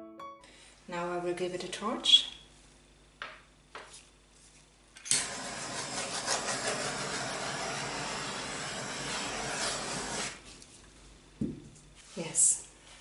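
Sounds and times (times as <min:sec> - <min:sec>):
torch flame hissing: 0:05.1 - 0:10.4.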